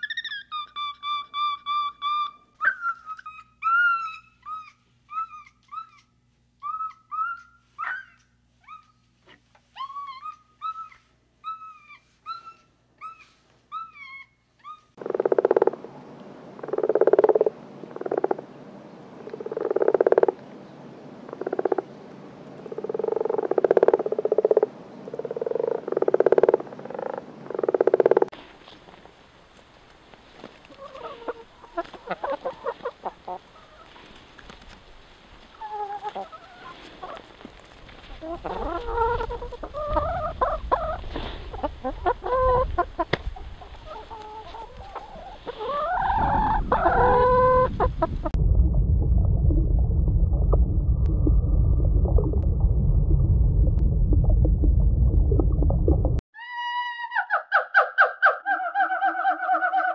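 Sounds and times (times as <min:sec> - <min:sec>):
frog croaking: 0:15.0 - 0:15.8, 0:16.6 - 0:18.4, 0:19.2 - 0:20.4, 0:21.3 - 0:21.9, 0:22.6 - 0:28.3.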